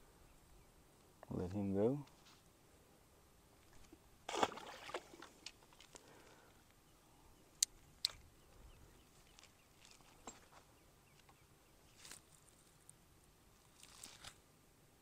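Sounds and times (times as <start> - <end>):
faint ticks and rustles: 0.3 - 2.5, 3.5 - 4.1, 5.2 - 14.4.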